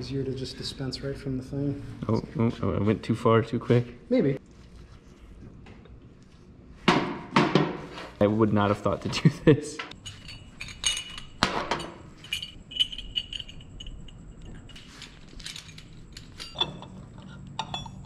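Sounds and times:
metal parts clicking and clinking: 9.9s - 18.0s.

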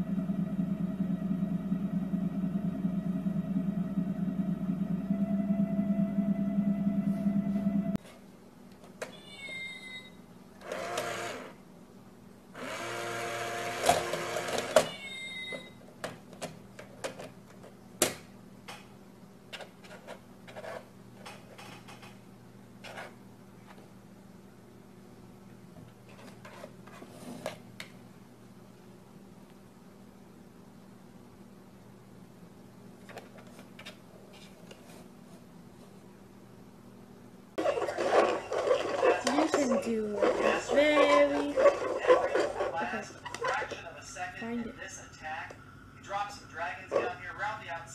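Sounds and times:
low steady hum: 0.0s - 10.7s, 14.7s - 47.9s
toy coin bank whirring: 10.6s - 11.6s, 12.6s - 15.2s.

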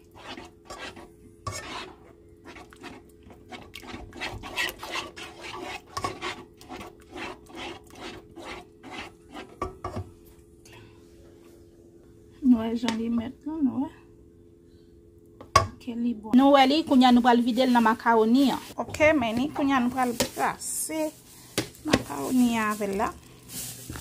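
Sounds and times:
metal spoon stirring sauce in pan: 0.0s - 9.6s.

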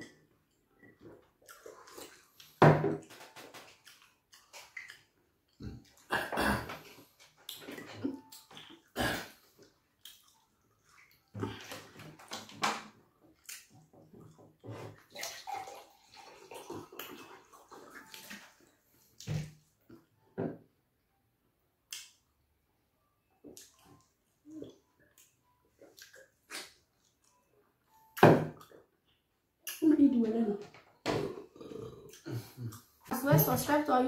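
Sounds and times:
wet smacking and chewing: 0.5s - 6.1s, 9.6s - 12.5s, 13.3s - 18.6s, 23.5s - 27.5s.

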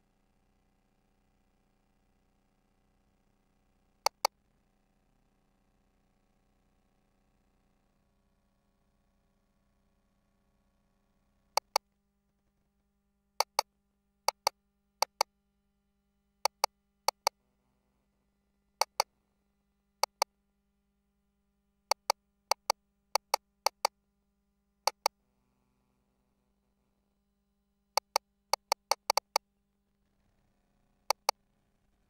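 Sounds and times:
console keys clicking: 4.1s - 4.3s, 11.6s - 11.8s, 13.4s - 13.6s, 14.3s - 15.2s, 16.5s - 17.3s, 18.8s - 19.0s, 20.0s - 20.2s, 21.9s - 23.9s, 24.9s - 25.1s, 28.0s - 29.4s, 31.1s - 31.3s.

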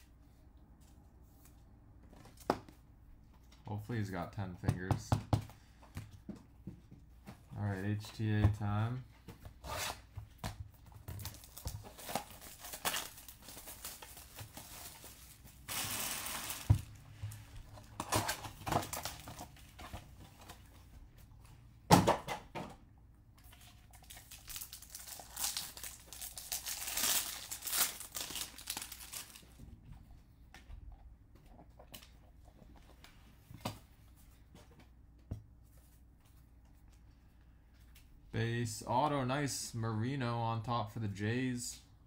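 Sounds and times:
foil wrappers crinkling: 11.1s - 18.0s, 23.8s - 29.6s.

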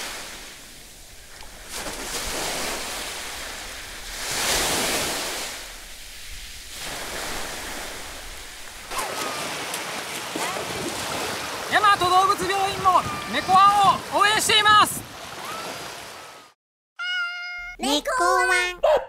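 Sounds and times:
splashing through shallow water: 0.0s - 16.4s
small waves washing on beach: 0.0s - 16.6s
wind on microphone: 12.4s - 15.2s.

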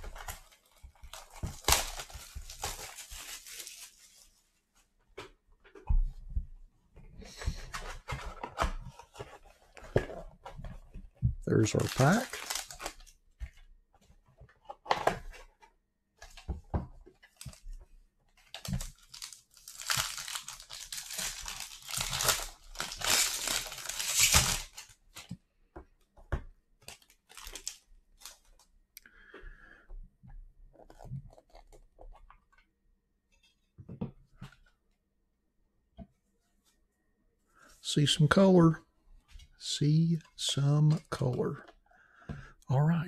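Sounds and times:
foil wrapper tearing: 19.1s - 24.8s.

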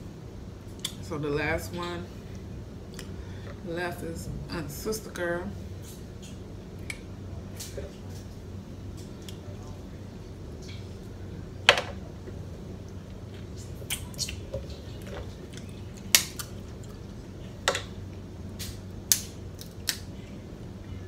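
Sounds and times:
low hum: 0.0s - 21.0s
crab shells cracking: 16.0s - 16.6s, 19.1s - 20.1s.

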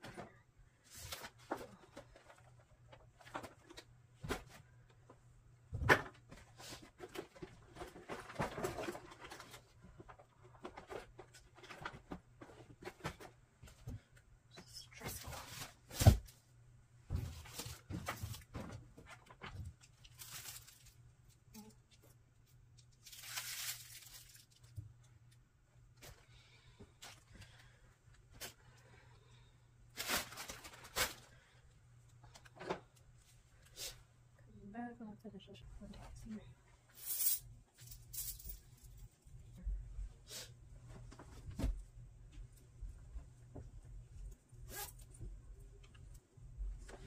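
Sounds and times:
rustling: 17.2s - 21.1s, 22.9s - 24.8s, 29.9s - 31.5s.

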